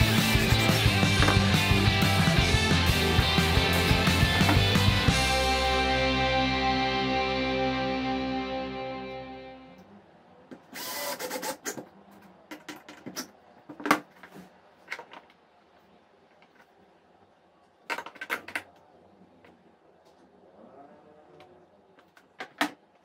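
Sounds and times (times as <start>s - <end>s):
cordless drill driving screw: 10.8s - 11.6s.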